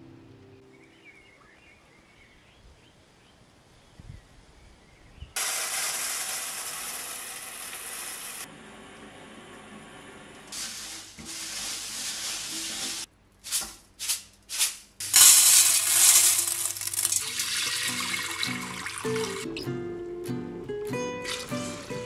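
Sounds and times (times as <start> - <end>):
beans pouring into metal colander: 5.4 - 8.4, 10.6 - 19.4
beans swished in water: 10.6 - 19.4.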